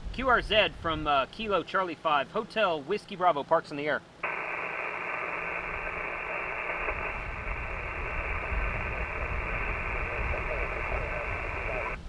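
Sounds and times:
radio receiver hiss: 4.2s - 12.0s
low rumble: 5.3s - 12.0s.

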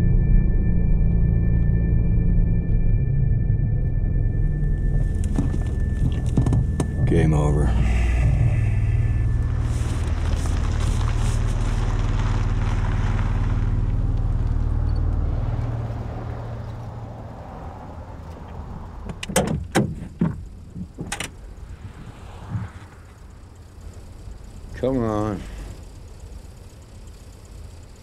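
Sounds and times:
vehicle rumbling: 0.0s - 28.0s
sharp clicks and knocks: 5.1s - 7.2s, 18.3s - 21.4s.

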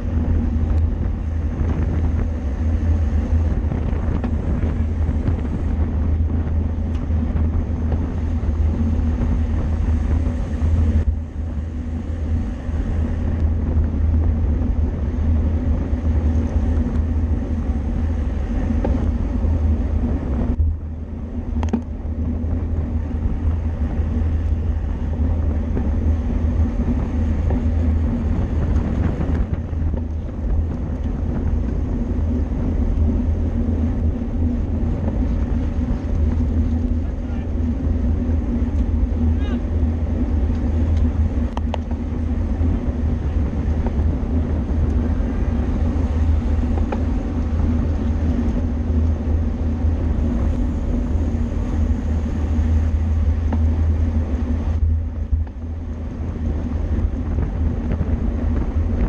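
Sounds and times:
wind rushing over microphone: 0.0s - 59.0s.

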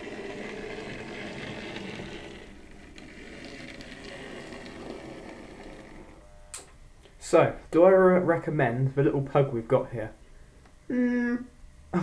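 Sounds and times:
model train motor humming: 0.0s - 6.2s.

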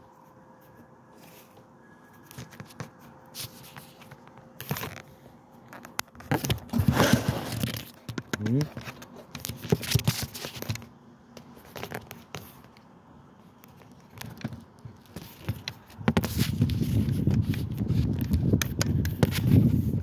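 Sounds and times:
wind rumble on microphone: 16.0s - 20.0s.

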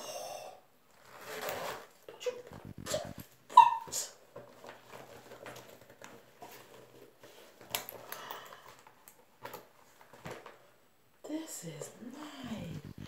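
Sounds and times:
handbag rustling: 0.9s - 3.4s, 4.2s - 10.7s.

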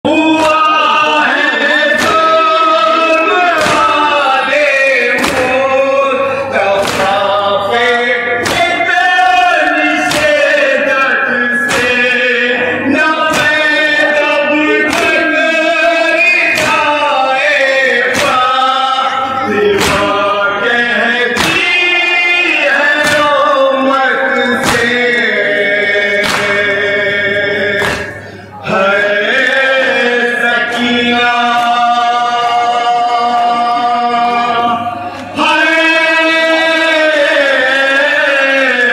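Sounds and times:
men chanting a lament: 0.0s - 38.9s
chest-beating slaps: 1.9s - 2.4s, 3.6s - 4.0s, 5.1s - 5.6s, 6.8s - 7.3s, 8.4s - 8.9s, 10.0s - 10.6s, 11.6s - 12.1s, 13.3s - 13.8s, 14.8s - 15.3s, 16.5s - 17.0s, 18.1s - 18.5s, 19.8s - 20.2s, 21.4s - 21.8s, 22.9s - 23.4s, 24.6s - 25.0s, 26.2s - 26.8s, 27.8s - 28.2s.

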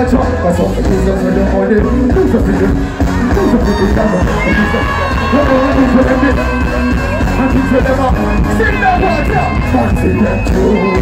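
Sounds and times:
crowd noise: 0.0s - 11.0s
heavy bass-led beat: 0.0s - 11.0s.

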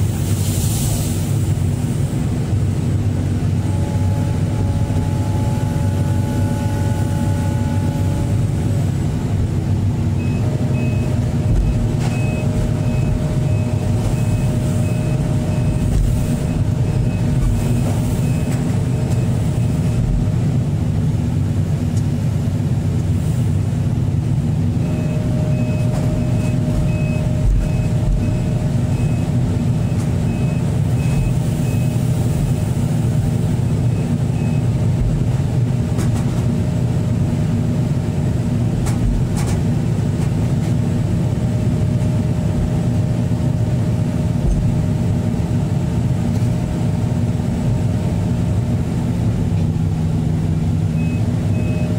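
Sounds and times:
diesel engine running: 0.0s - 51.9s
steady whine: 0.0s - 51.9s
travel alarm beeping: 3.6s - 8.4s, 10.2s - 20.0s, 24.8s - 32.7s, 33.6s - 34.8s, 51.0s - 51.9s.

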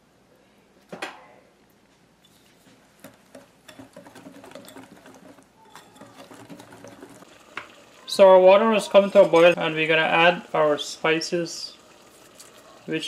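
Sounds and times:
whisk clicking against glass bowl: 3.4s - 7.2s.

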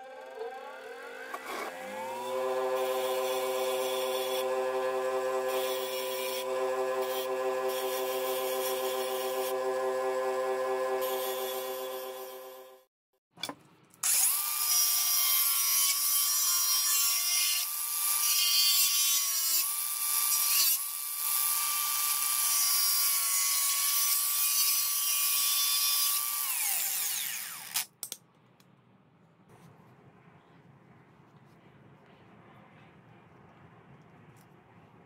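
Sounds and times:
power tool whining: 0.0s - 12.8s.

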